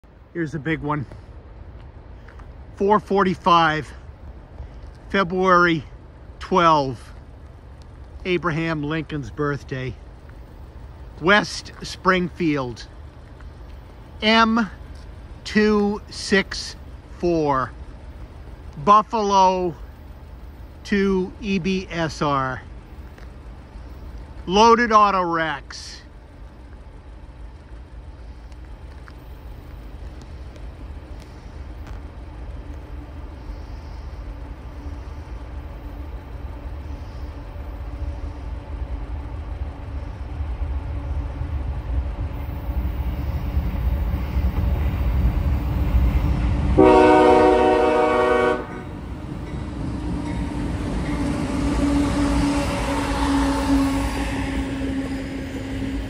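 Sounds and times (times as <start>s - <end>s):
diesel locomotive rumble: 0.0s - 56.0s
train wheel noise: 0.0s - 56.0s
train horn blast: 46.7s - 49.0s, 51.2s - 56.0s.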